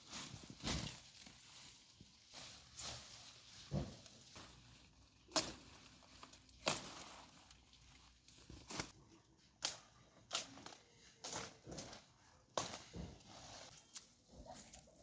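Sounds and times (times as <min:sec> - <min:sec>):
rustling foliage: 0:00.0 - 0:15.0
plant stems snapping: 0:05.3 - 0:07.6.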